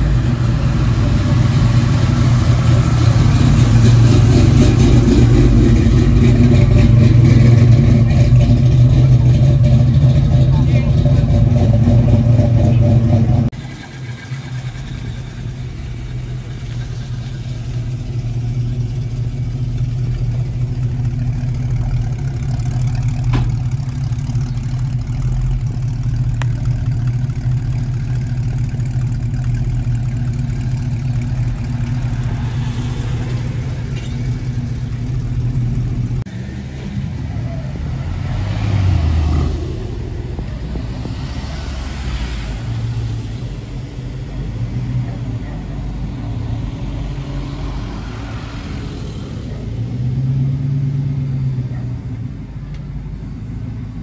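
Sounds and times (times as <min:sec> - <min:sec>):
car engine and road noise: 0:00.0 - 0:54.0.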